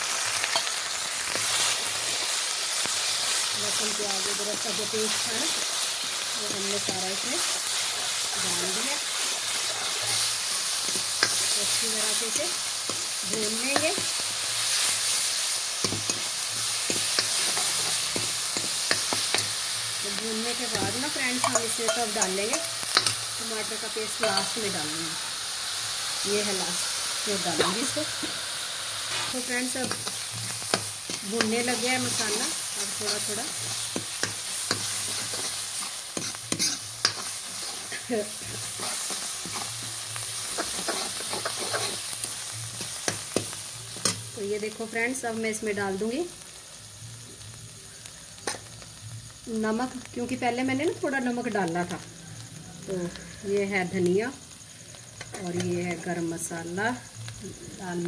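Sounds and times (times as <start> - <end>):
paste sizzling in hot oil: 0.0 - 58.0
metal spatula scraping a pan: 9.5 - 11.6, 29.1 - 42.2.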